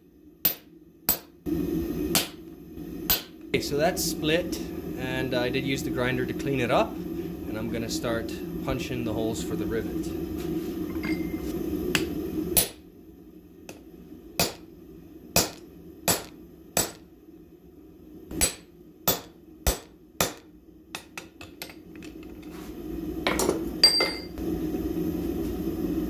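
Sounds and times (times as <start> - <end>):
hammer striking metal punch: 0.5 - 1.3, 2.1 - 2.4, 3.1 - 3.3, 12.0 - 12.8, 14.4 - 14.6, 15.4 - 17.0, 18.3 - 21.8.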